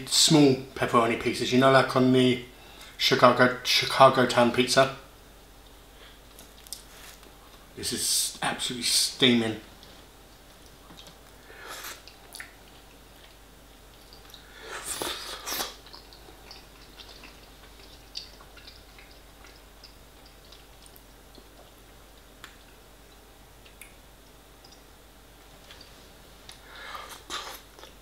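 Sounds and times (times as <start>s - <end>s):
person chewing food: 5.6s - 7.7s, 9.8s - 24.9s, 25.6s - 28.0s
faint mouth clicks: 11.8s - 12.6s.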